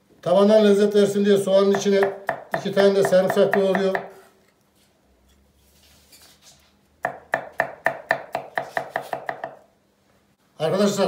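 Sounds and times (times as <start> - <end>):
knife chopping on wooden board: 1.6 - 4.2, 7.0 - 9.6.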